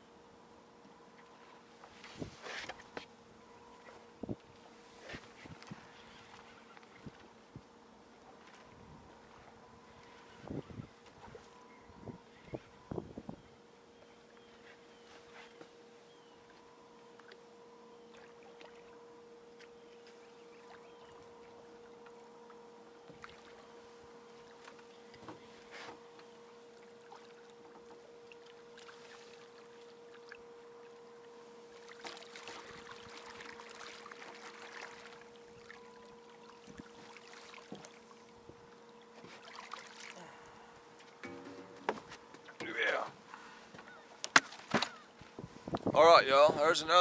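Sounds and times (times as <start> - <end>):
faint steady hum: 0.0 - 47.0
water lapping against boat hull: 16.4 - 46.6.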